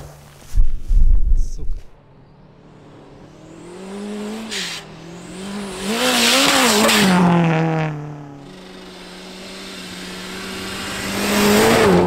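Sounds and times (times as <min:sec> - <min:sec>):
rally car engine revving: 0:02.4 - 0:12.0.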